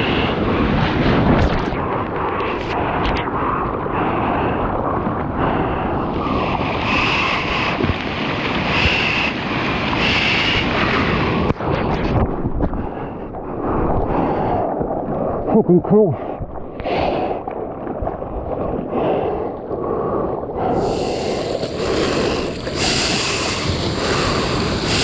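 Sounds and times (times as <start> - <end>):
wind buffeting microphone: 0.0 - 25.0
paddling splashes: 4.8 - 19.6, 20.7 - 25.0
surf rushing: 4.9 - 15.6, 20.6 - 25.0.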